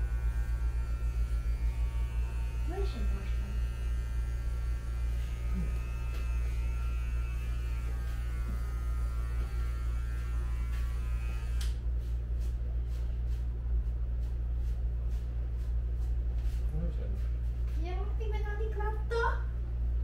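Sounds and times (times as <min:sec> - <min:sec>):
electric hair clipper buzzing: 0:00.0 - 0:11.8.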